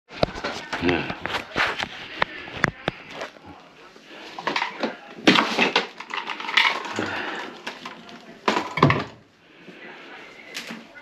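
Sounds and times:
wooden cabinet knocks and clattering: 0:08.5 - 0:09.2.

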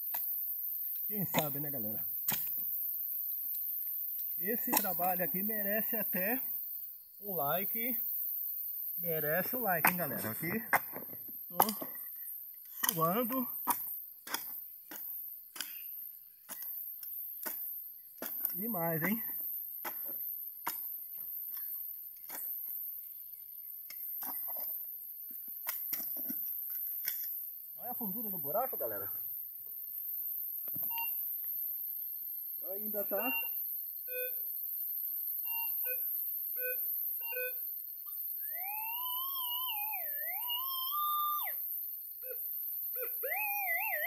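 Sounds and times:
digger striking soil: 0:12.8 - 0:15.8, 0:17.4 - 0:20.8
metal detector beeps and tones: 0:30.9 - 0:31.3, 0:33.0 - 0:34.5, 0:35.4 - 0:44.0.

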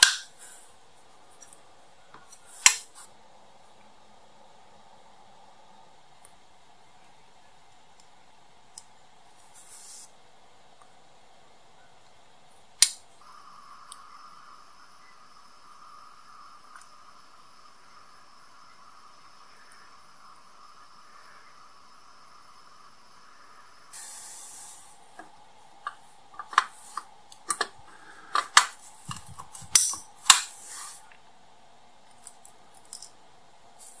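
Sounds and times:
faint steady hiss: 0:00.0 - 0:34.0
brief hiss: 0:23.9 - 0:25.1, 0:30.4 - 0:31.1.

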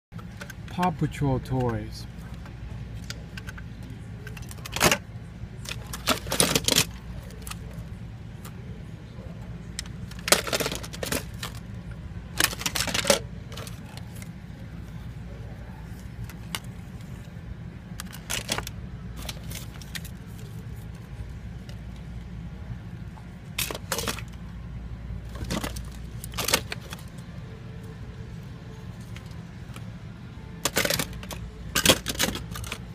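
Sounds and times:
steady low hum: 0:00.1 - 0:32.9
plastic toys clattering: 0:03.0 - 0:05.0, 0:05.6 - 0:07.8, 0:09.8 - 0:11.7, 0:12.3 - 0:14.3, 0:18.0 - 0:20.9, 0:23.6 - 0:24.4, 0:25.2 - 0:27.2, 0:30.6 - 0:32.9.

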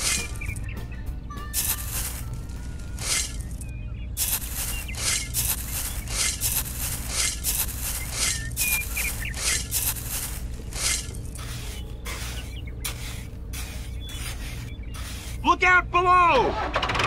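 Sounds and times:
metal shovel scraping sand: 0:00.0 - 0:00.6, 0:01.6 - 0:03.6, 0:04.2 - 0:15.5
sand pouring into toy trolley: 0:01.6 - 0:03.6, 0:04.2 - 0:15.4.

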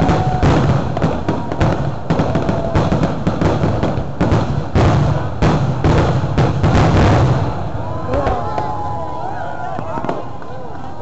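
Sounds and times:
fireworks bursting bangs: 0:00.0 - 0:09.0, 0:09.7 - 0:10.5.

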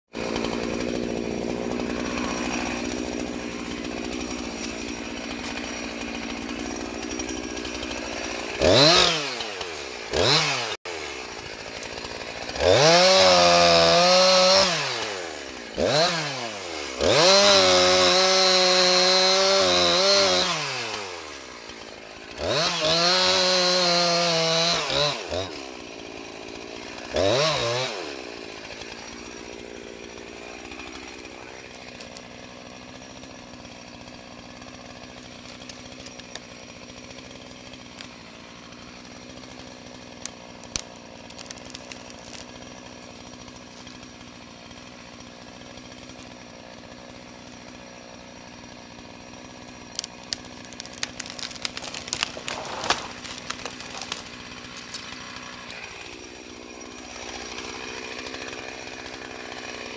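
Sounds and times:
chainsaw idling and revving: 0:00.1 - 0:59.9.

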